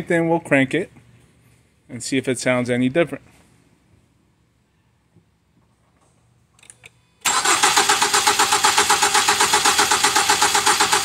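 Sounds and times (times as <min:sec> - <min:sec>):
engine cranking by starter: 0:07.2 - 0:11.0.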